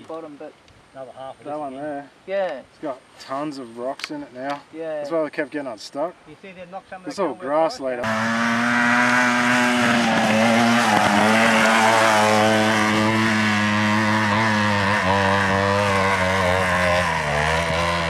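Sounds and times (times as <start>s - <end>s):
dirt bike engine at high revs: 8.0s - 18.0s.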